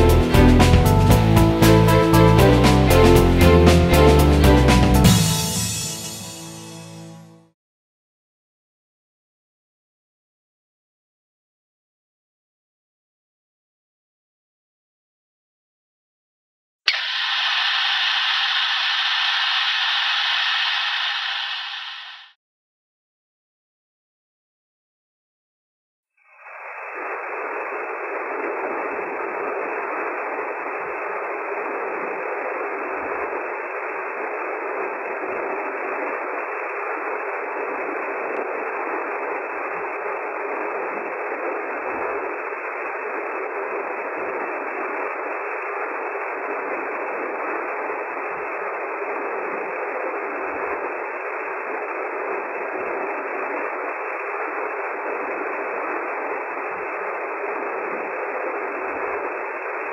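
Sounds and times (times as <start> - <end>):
dishwasher spray hissing: 16.9 - 22.3.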